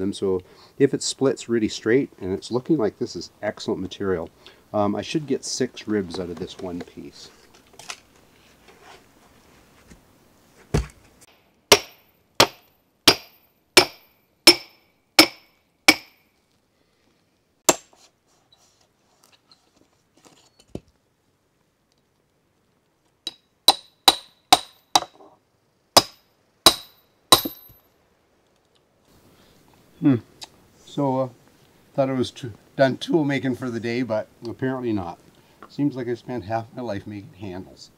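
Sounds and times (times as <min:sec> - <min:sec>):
hammer striking steel wedge: 0:11.7 - 0:16.2, 0:17.7 - 0:17.9, 0:23.3 - 0:25.2, 0:26.0 - 0:27.8.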